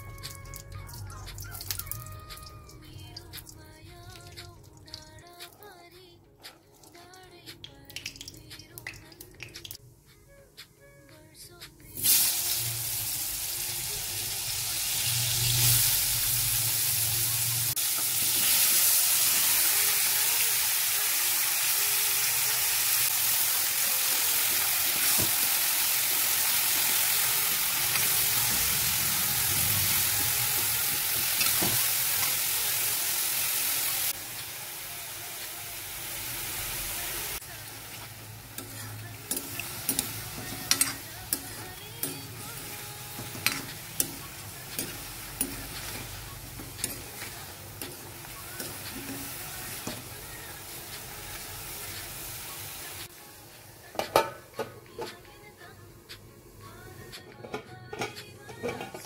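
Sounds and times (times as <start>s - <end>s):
mushrooms sizzling in hot oil: 12.0s - 53.2s.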